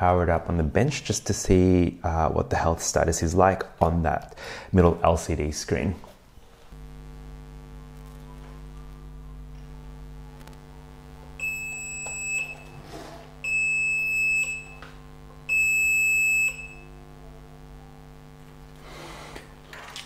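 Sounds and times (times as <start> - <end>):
steady electrical hum: 0.0 - 20.0
warning buzzer beeps: 11.3 - 18.4.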